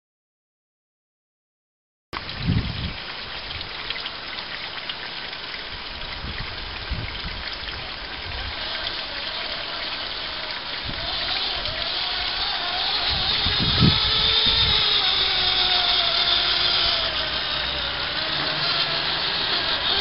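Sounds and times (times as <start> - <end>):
toy truck motor and gear hiss: 8.4 - 20.0.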